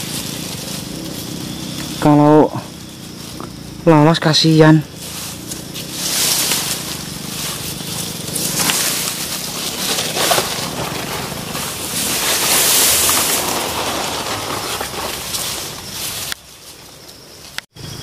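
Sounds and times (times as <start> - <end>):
leaves rustling and swishing: 0.0 - 3.7, 4.4 - 17.6.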